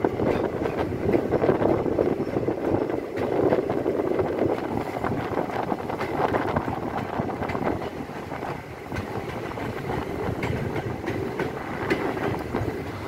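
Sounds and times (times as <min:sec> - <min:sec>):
train wheels clattering on rails: 0:00.0 - 0:13.0
wind buffeting microphone: 0:00.0 - 0:13.0.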